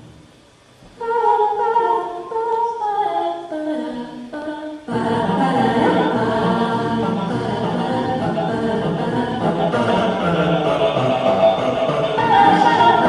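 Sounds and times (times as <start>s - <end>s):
choir singing: 1.0s - 13.0s.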